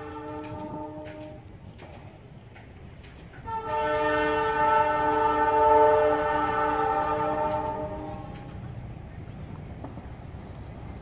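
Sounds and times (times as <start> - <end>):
locomotive air horn blast: 0.0 - 1.5, 3.5 - 8.6.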